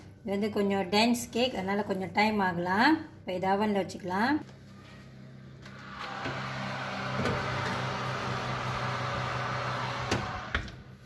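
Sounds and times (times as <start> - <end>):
oven fan humming: 4.9 - 11.0.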